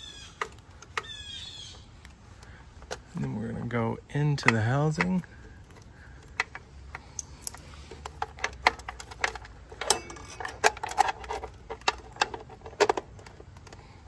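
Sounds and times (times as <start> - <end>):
clicks and taps of parts handled: 0.4 - 1.1, 4.4 - 13.8
connectors rattling against frame: 2.0 - 14.0.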